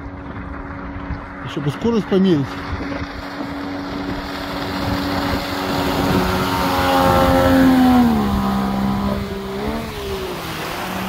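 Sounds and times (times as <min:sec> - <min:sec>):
outboard motor running: 0:00.0 - 0:11.0
water rushing past: 0:00.0 - 0:11.0
wind rushing: 0:02.5 - 0:11.0.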